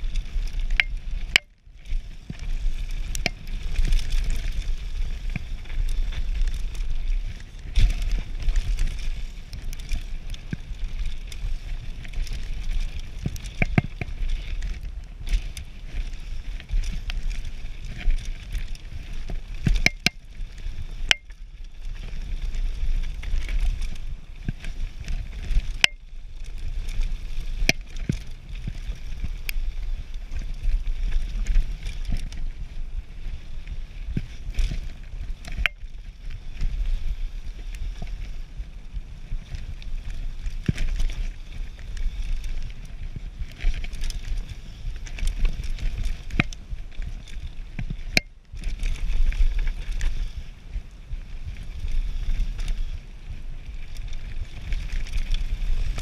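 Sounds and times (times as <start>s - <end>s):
tyres rumbling on dirt trail: 0.0s - 56.0s
bike clacking and rattling: 2.3s - 23.9s.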